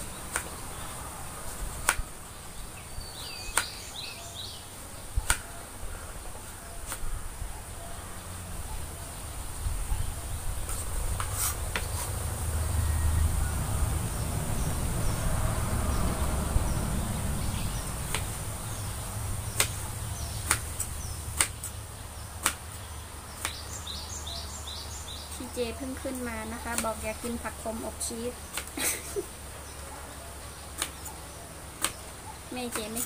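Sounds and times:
low steady rumble: 0:07.1 - 0:23.3.

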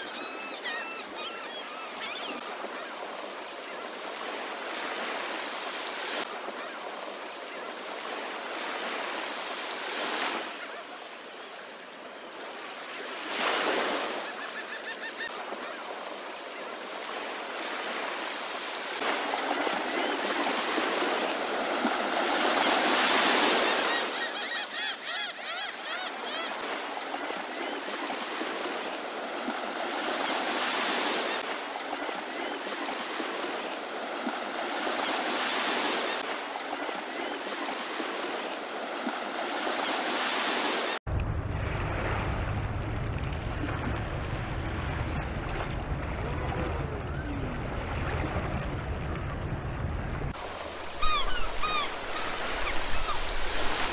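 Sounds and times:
faint gull calls: 0:23.5 - 0:26.6, 0:50.5 - 0:53.4
ocean surf washing in: 0:26.6 - 0:53.9.

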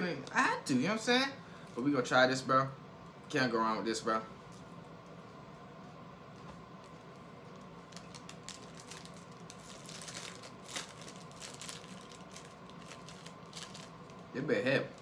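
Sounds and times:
plastic wrapper crackling: 0:06.8 - 0:15.0.

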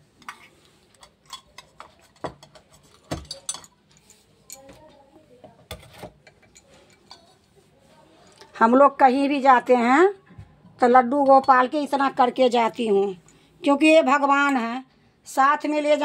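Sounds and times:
metal utensils clinking on table: 0:00.2 - 0:04.8, 0:05.7 - 0:07.5.

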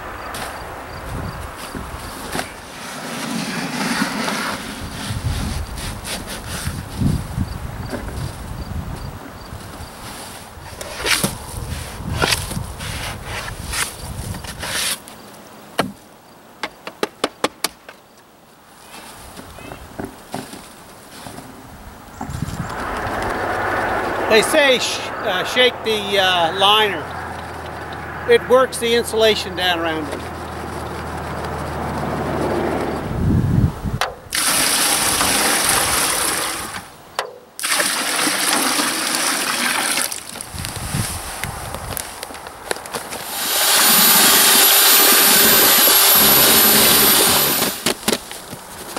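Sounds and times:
water pouring into plastic tub: 0:34.3 - 0:36.8, 0:37.6 - 0:40.4.

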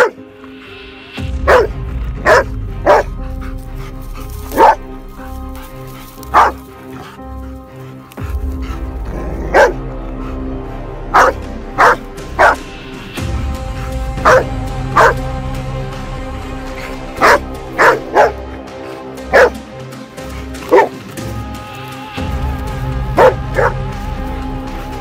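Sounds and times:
dog barking: 0:00.0 - 0:00.2, 0:01.4 - 0:03.1, 0:04.5 - 0:04.8, 0:06.3 - 0:06.6, 0:09.5 - 0:09.8, 0:11.1 - 0:12.6, 0:14.2 - 0:15.2, 0:17.2 - 0:18.4, 0:19.3 - 0:19.6, 0:20.7 - 0:21.0, 0:23.2 - 0:23.8
background music: 0:00.0 - 0:25.0.

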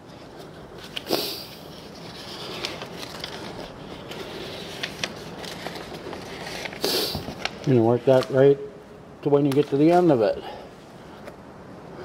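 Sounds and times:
release paper rustling: 0:00.1 - 0:08.4.

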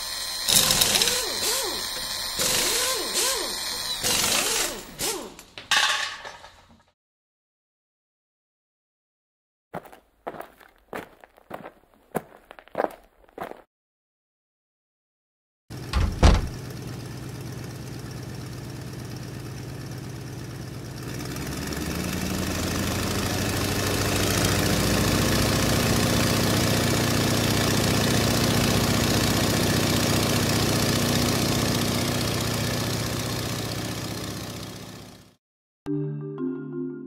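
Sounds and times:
short thump: 0:15.9 - 0:16.6.

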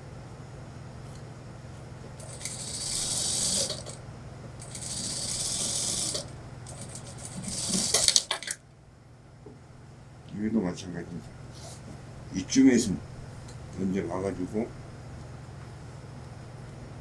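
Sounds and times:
sewing machine stitching: 0:02.2 - 0:04.0, 0:04.6 - 0:08.5.

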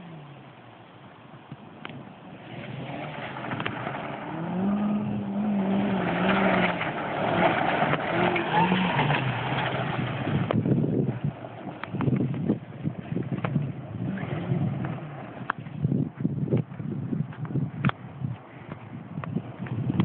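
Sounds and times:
car engine revving: 0:01.8 - 0:15.7
tyres crunching on gravel: 0:02.4 - 0:18.0.

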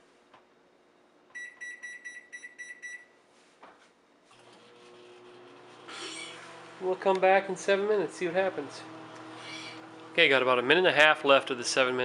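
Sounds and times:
microwave keypad beeps: 0:01.4 - 0:03.1
microwave running hum: 0:04.1 - 0:12.0.

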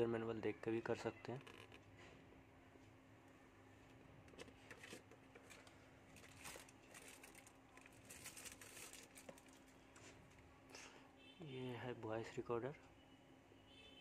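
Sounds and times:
plastic bag crinkling: 0:04.7 - 0:09.8.

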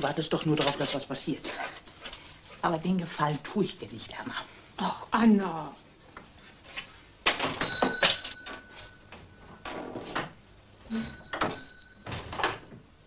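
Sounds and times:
shop door bell ringing: 0:07.6 - 0:09.5, 0:10.9 - 0:12.5.

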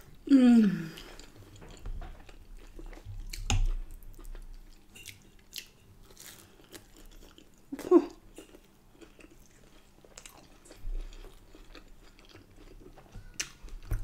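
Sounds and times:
chewing with wet mouth clicks: 0:08.4 - 0:14.0.

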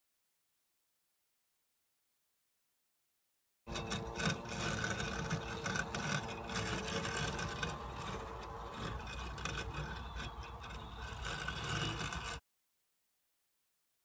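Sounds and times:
robotic lawn mower whirring: 0:03.7 - 0:12.4.

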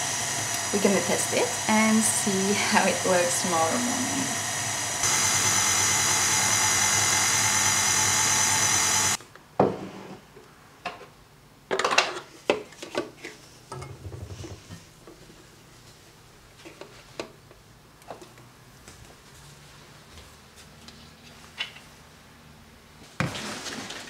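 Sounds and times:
stand mixer whirring: 0:00.0 - 0:09.2.

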